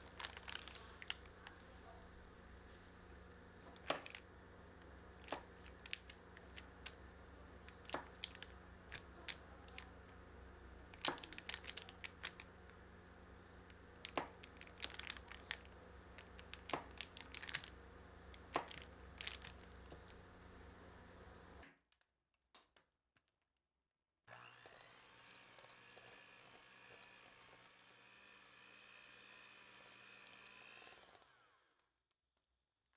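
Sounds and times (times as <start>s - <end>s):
faint steady hum: 0.0s - 21.6s.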